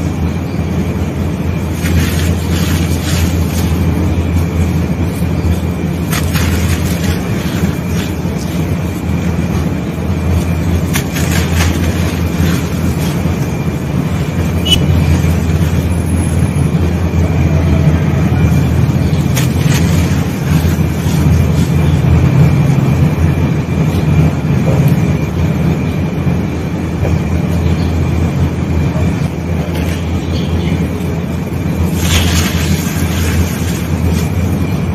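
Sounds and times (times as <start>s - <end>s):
gritty sand grinding: 1.3s - 16.7s, 18.5s - 22.9s, 29.7s - 34.9s
sharp crunches and crackles: 1.6s - 16.7s, 18.4s - 22.9s, 29.7s - 34.9s.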